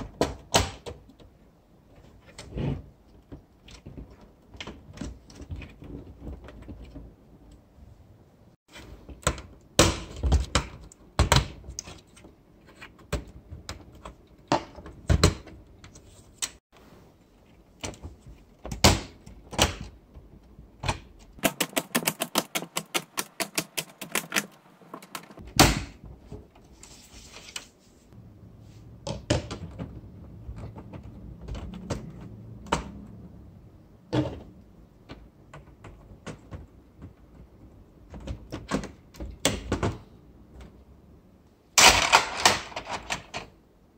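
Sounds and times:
plastic pieces clicking: 20.9 - 25.4.

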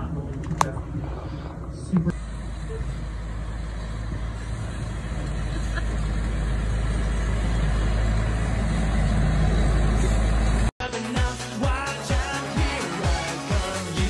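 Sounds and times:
leaf vacuum engine drone: 0.0 - 10.7.

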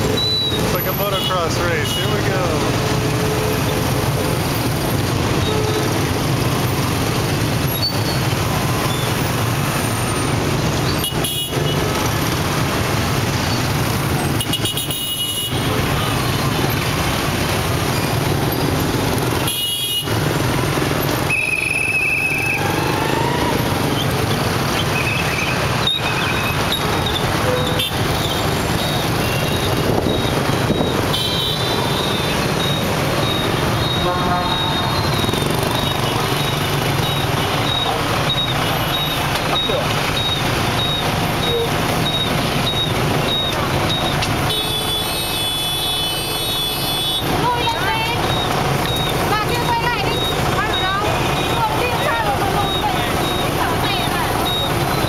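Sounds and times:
motorbike engines running: 0.0 - 55.0
horn beep: 21.2 - 23.4, 24.8 - 55.0.

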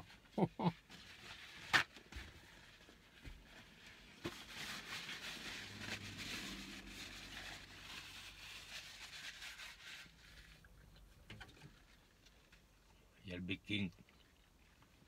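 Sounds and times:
paper napkin rustling: 3.8 - 10.6.

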